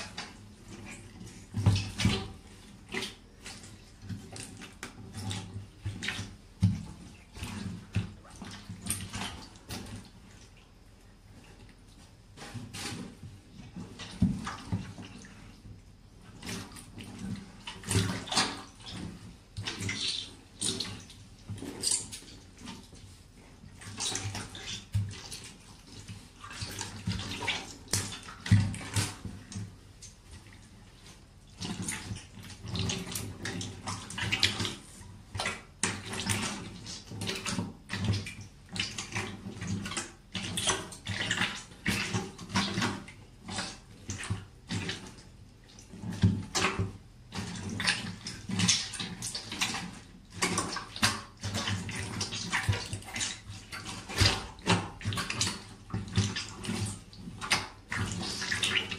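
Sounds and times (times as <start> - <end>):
boots squelching and splashing: 23.8 - 29.6, 47.5 - 58.9.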